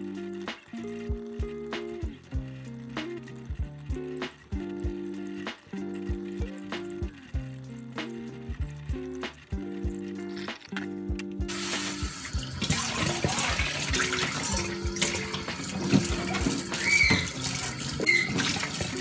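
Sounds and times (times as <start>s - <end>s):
background music: 0.0s - 19.0s
tap water splashing in steel bowl: 11.5s - 19.0s.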